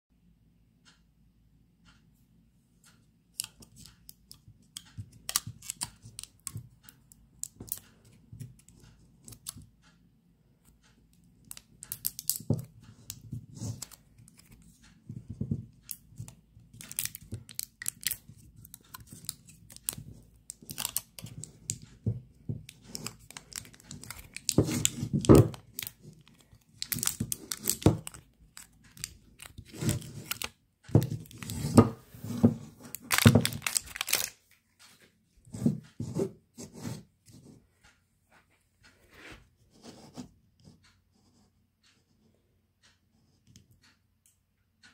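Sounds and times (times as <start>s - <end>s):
plastic film crinkling: 22.9s - 30.5s, 32.9s - 34.4s.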